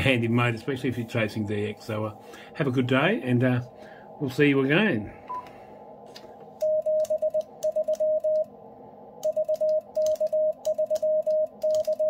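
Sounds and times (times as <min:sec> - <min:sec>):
morse code tone: 0:06.6 - 0:08.5, 0:09.2 - 0:12.0.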